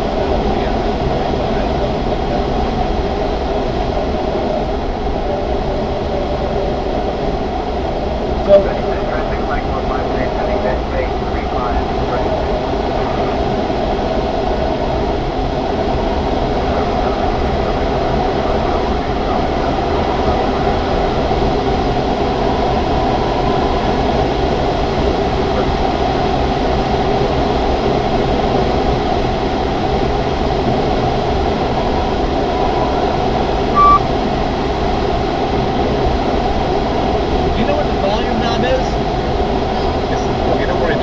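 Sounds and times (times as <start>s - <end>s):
short beep: 8.5s - 8.8s, 33.8s - 34.1s.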